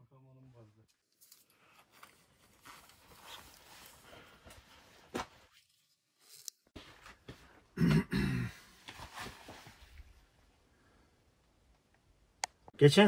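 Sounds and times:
person clearing throat: 7.8s - 8.7s.

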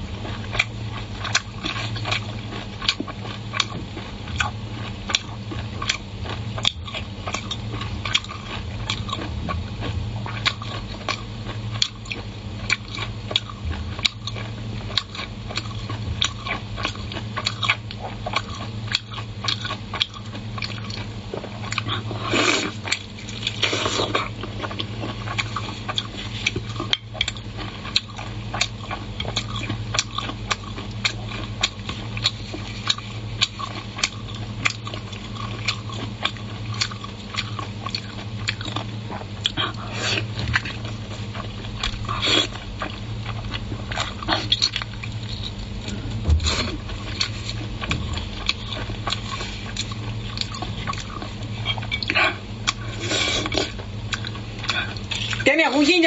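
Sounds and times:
steady low hum: 0.0s - 56.0s
lip smacks and chewing: 0.2s - 55.5s
person slurping: 22.3s - 22.8s, 52.0s - 53.8s.

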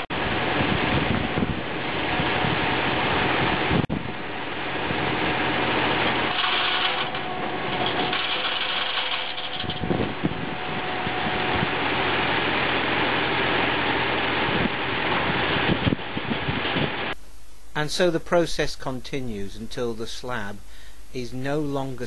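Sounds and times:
tractor engine: 0.0s - 17.7s
faint steady whine: 0.0s - 22.0s
circular saw ripping a board: 5.9s - 9.9s.

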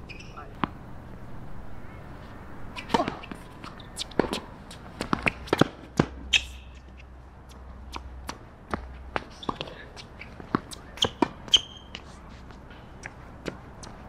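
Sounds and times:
tennis racket hitting ball: 2.8s - 6.6s
tennis ball bouncing on hard court: 2.8s - 7.1s, 7.9s - 12.0s.

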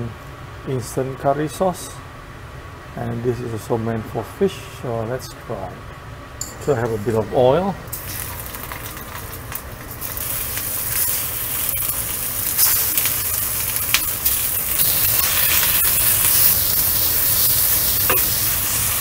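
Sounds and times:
fish sizzling in hot oil: 7.9s - 19.0s.

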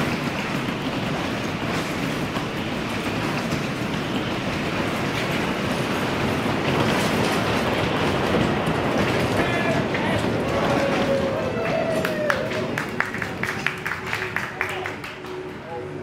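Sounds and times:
ride cars rumbling on wooden platform: 0.0s - 16.0s.

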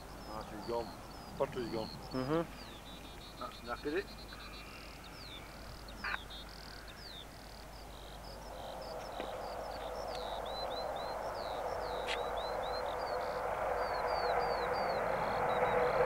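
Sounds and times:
bird singing: 0.0s - 16.0s
jet aircraft taking off: 8.7s - 16.0s.

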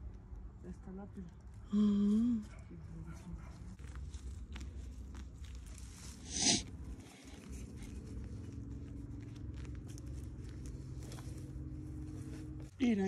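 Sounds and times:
hands scraping and patting dirt: 3.6s - 12.7s.

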